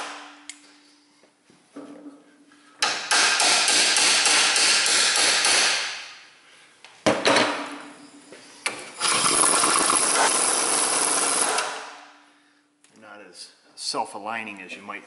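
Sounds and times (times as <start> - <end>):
air impact wrench: 2.8 - 6.2, 8.7 - 12.1.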